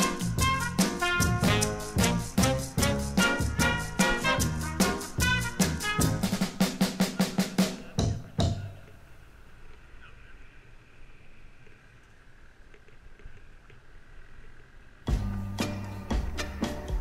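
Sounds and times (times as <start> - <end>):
drum hits: 0.0 - 8.8, 15.1 - 17.0
faint steady hiss: 0.0 - 17.0.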